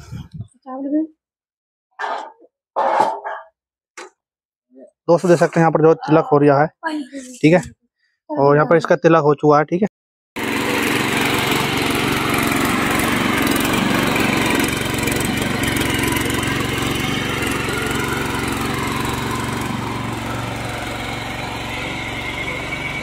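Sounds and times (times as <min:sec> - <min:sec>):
small petrol engine running: 0:10.4 - 0:23.0.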